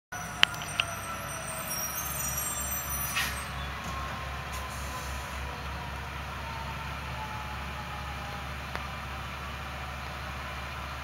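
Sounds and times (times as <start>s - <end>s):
air brakes hissing: 0.2s - 3.8s, 4.5s - 5.5s
diesel engine idling: 0.2s - 11.0s.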